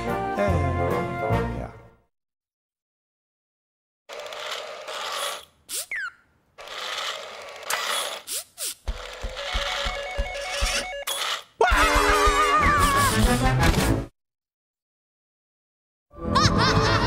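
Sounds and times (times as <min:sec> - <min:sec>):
toy robot whirring and clicking: 0:04.1 - 0:11.6.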